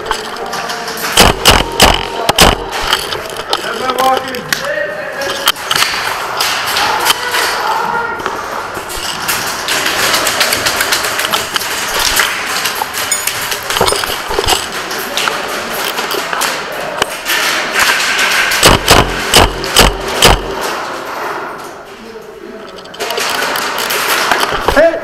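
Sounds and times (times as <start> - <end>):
bbs striking walls and props: 0.0 - 4.2, 8.8 - 21.1
airsoft guns firing: 1.0 - 3.1, 17.2 - 20.7.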